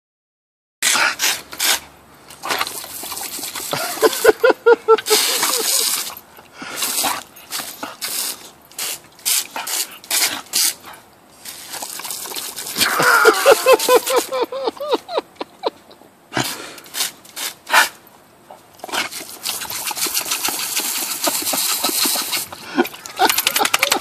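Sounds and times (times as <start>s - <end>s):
hose nozzle spraying water: 5.1s - 6.2s, 6.8s - 10.8s.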